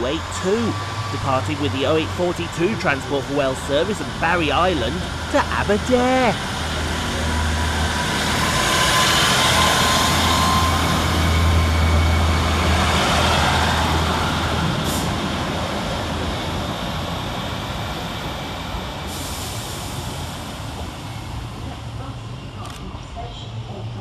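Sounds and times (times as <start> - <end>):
diesel train engine droning: 0.0 - 24.0.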